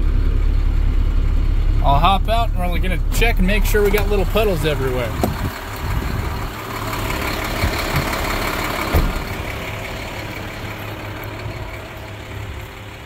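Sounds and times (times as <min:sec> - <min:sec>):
truck engine idling: 0:00.0 - 0:13.0
wind noise on microphone: 0:05.1 - 0:06.5.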